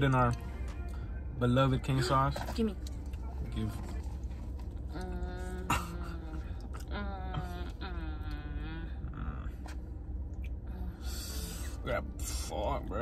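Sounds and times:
steady low rumble: 0:00.0 - 0:13.0
person humming while eating: 0:04.9 - 0:09.5.

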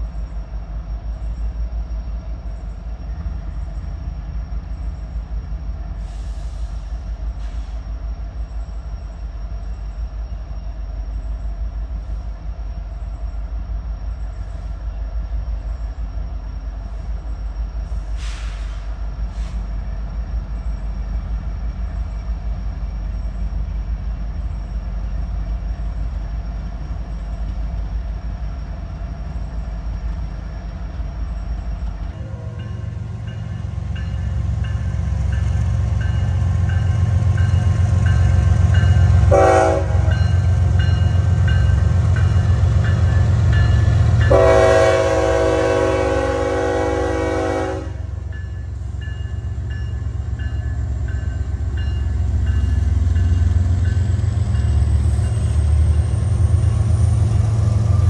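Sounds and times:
diesel locomotives droning: 0:00.0 - 0:58.0
short hisses: 0:18.0 - 0:19.6.

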